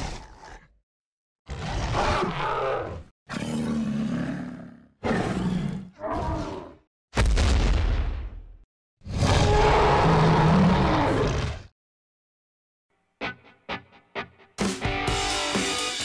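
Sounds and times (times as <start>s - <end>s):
dinosaur roars: 0.0s - 0.7s, 1.5s - 6.8s, 9.1s - 11.7s.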